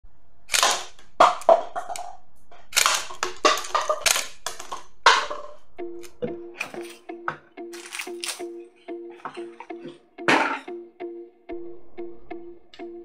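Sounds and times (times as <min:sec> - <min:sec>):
toy pistol firing snaps: 0:00.5 - 0:02.1, 0:02.7 - 0:05.2
shell casings rattling: 0:02.7 - 0:04.9, 0:07.7 - 0:08.5.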